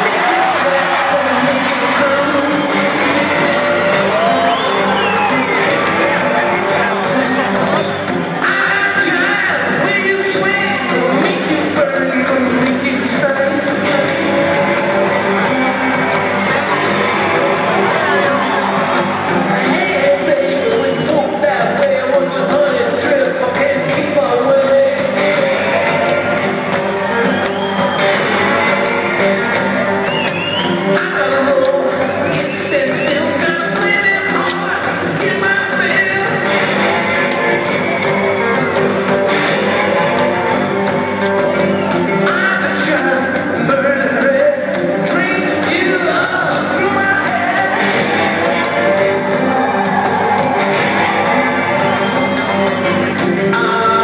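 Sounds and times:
man singing: 0.0 - 5.6, 8.4 - 14.6, 19.4 - 26.2, 30.8 - 36.6, 42.1 - 48.2, 53.4 - 54.0
electric guitar: 0.0 - 54.0
live rock band playing: 0.0 - 54.0.

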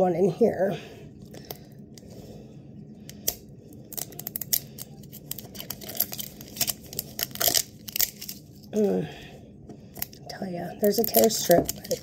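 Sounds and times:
plastic film wrapper crinkling: 3.3 - 8.8, 10.8 - 12.0.

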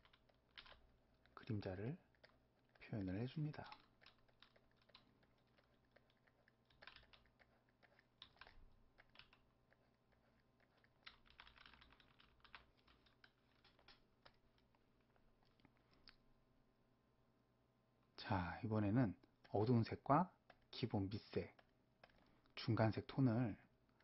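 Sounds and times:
computer keyboard clicks: 0.0 - 0.8, 6.7 - 9.4, 10.8 - 14.0.

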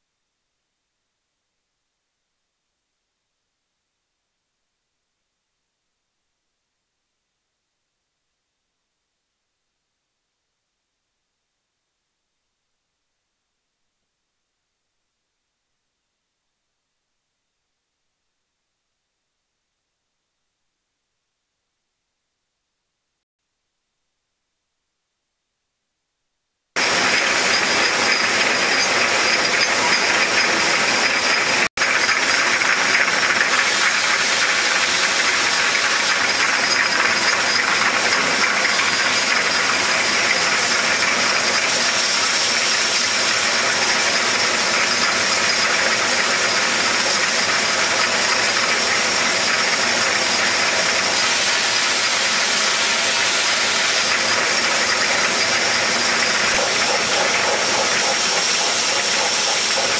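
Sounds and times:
bottling machine hiss and clatter: 26.8 - 59.9.

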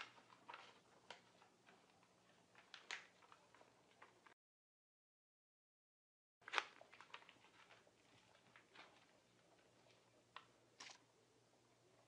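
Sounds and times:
paper rustling and clicks: 0.0 - 4.4, 6.4 - 9.2.

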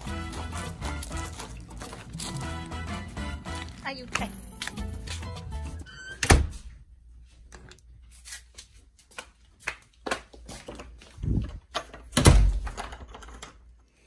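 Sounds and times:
sandal footsteps on tile floor: 0.0 - 5.9.

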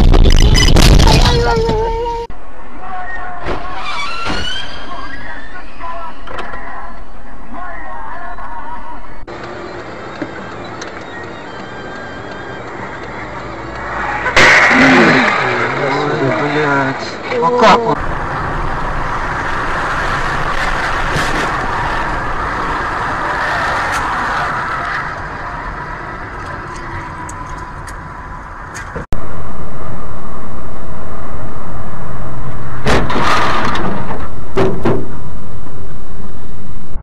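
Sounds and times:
distorted rush of noise: 0.0 - 1.7, 13.1 - 37.0
road and engine noise: 0.0 - 37.0
sharp bangs: 14.2 - 15.9, 32.7 - 35.4
vehicle crash impacts: 14.2 - 16.8, 18.0 - 27.2, 32.8 - 35.2.

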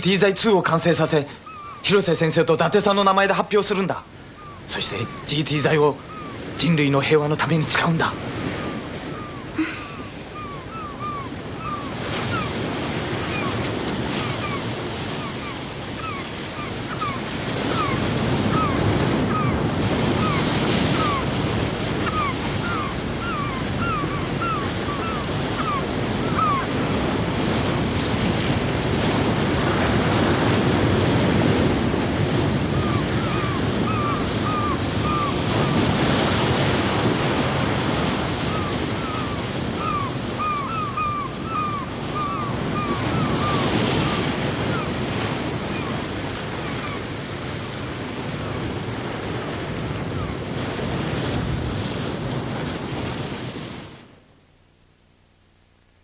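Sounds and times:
ocean surf washing: 0.0 - 54.2
wind: 0.0 - 56.0
short chirping call: 4.4 - 5.3, 8.6 - 12.5.

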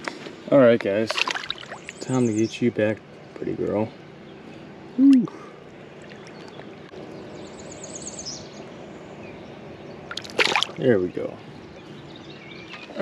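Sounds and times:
running river water: 0.9 - 2.6, 5.0 - 7.4, 10.0 - 11.2
bird trilling: 5.9 - 10.8.

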